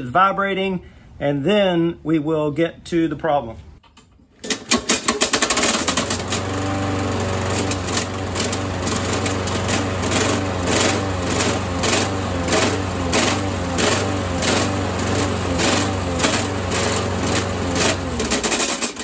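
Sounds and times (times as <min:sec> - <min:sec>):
lawnmower engine running: 0:04.4 - 0:19.0.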